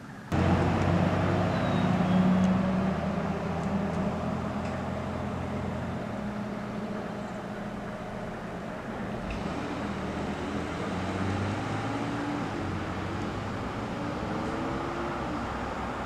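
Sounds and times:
engine drone: 0.0s - 16.0s.

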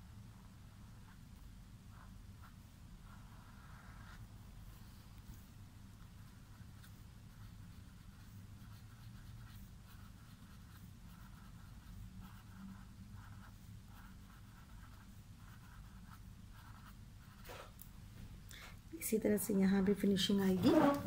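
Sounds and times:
low steady hum: 0.0s - 21.0s
pen scratching on paper: 0.3s - 5.2s, 6.0s - 17.7s.

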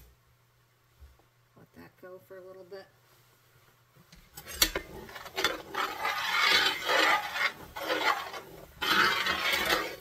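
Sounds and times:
utensil scraping bottom of pan: 4.3s - 10.0s
meat juices boiling: 4.4s - 10.0s.

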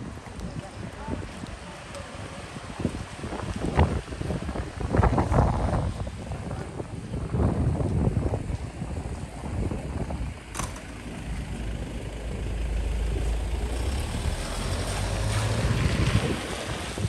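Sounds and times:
wind on microphone: 0.0s - 17.0s
sharp click: 10.6s - 10.9s
vehicle passing: 10.6s - 17.0s.

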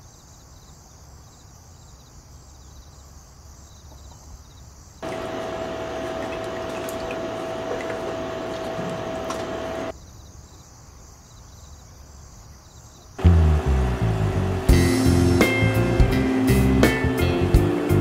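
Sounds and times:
running water rushing: 5.0s - 9.9s.

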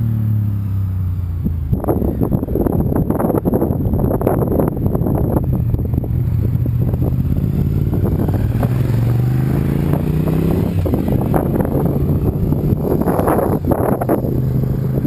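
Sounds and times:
motorcycle riding past at speed: 6.4s - 15.0s.

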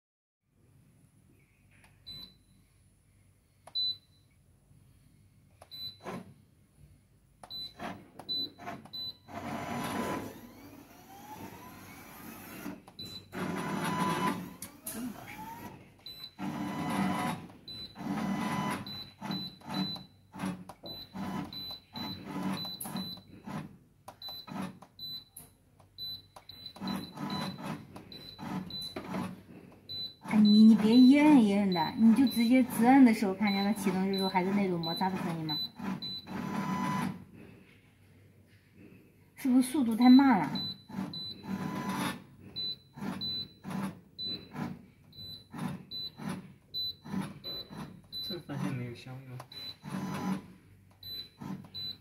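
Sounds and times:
machine motor whine: 9.3s - 15.8s, 16.4s - 18.9s
short high beeps: 33.4s - 36.3s.

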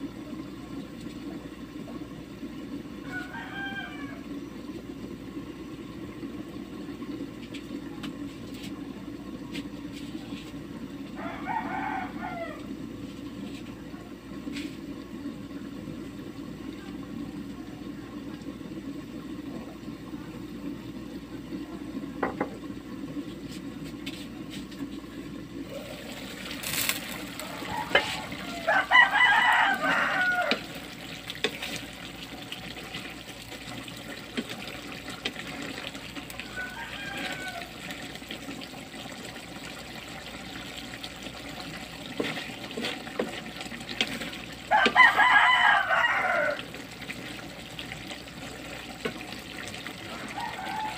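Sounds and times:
pan simmering and bubbling: 0.0s - 50.9s
rooster crowing: 3.0s - 4.4s, 11.2s - 12.8s, 26.6s - 30.9s, 36.2s - 38.0s, 44.7s - 46.8s, 50.0s - 50.9s.

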